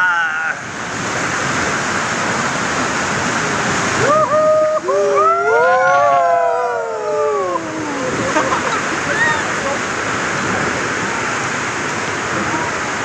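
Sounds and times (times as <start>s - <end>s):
whitewater rapids rushing: 0.0s - 13.0s
people shouting and cheering: 4.0s - 9.8s.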